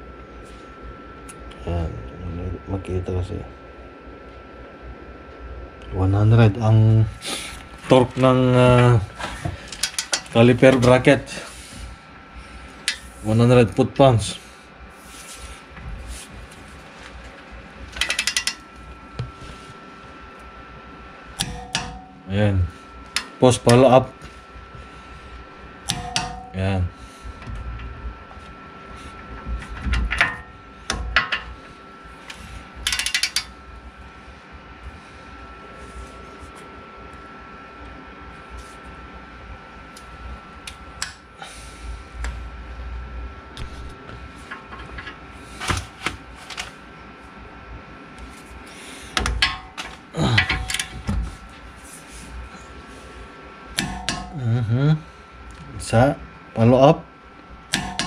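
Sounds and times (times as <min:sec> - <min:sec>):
ratchet clicks: 0:18.0 - 0:18.6, 0:32.8 - 0:33.5
sharp metal clicks and knocks: 0:18.0 - 0:18.6, 0:32.8 - 0:33.5.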